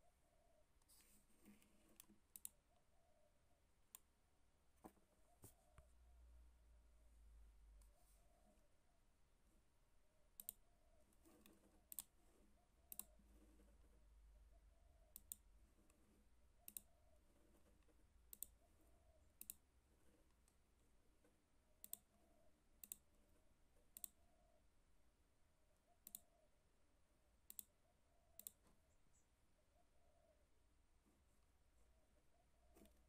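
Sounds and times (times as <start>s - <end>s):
mouse button clicks: 26.0s - 26.3s.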